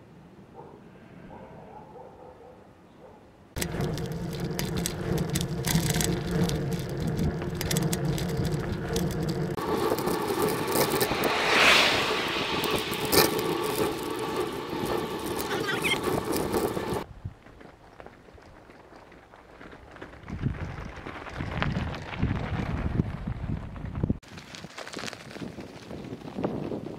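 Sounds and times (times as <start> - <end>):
parts rattling and clicking: 3.6 - 11.2
scooter wheels rumbling: 3.6 - 26.9.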